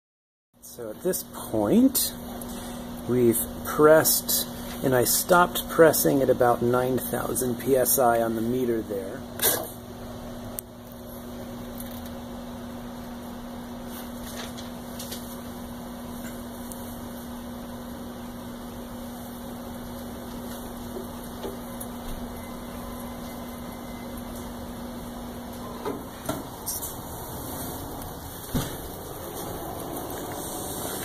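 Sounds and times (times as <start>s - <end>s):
hydraulic pump humming: 15.4s - 31.0s.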